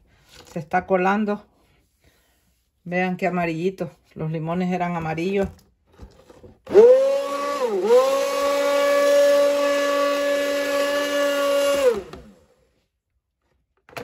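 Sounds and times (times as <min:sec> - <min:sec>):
stick blender motor whine: 0:06.7 - 0:12.6.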